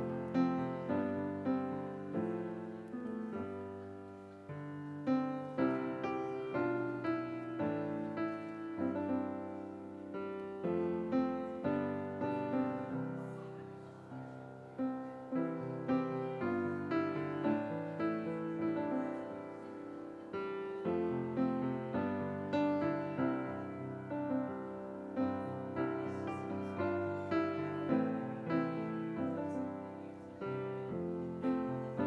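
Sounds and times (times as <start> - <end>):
slow gentle piano piece: 0.0 - 32.0.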